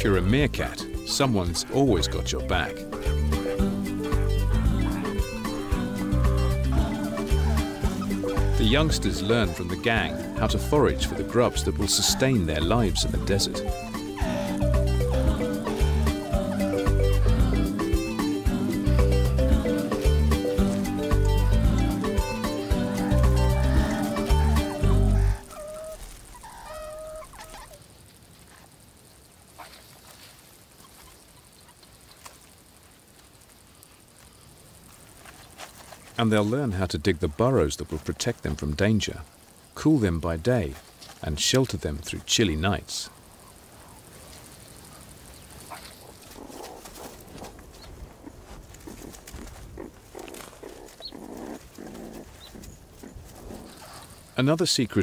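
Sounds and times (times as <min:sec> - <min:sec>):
soft animal vocal sounds: 0:00.0 - 0:27.9, 0:29.5 - 0:32.6, 0:42.7 - 0:54.4
meerkat pups warbling calls: 0:02.0 - 0:17.4, 0:22.0 - 0:27.8
scratching in dry sand: 0:24.0 - 0:37.6, 0:43.1 - 0:54.5
claws scratching soil: 0:43.1 - 0:54.4.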